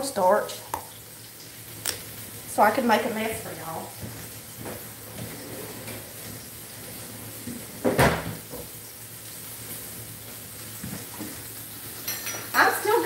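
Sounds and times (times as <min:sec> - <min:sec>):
cupboard door shutting: 0:07.8 - 0:08.4.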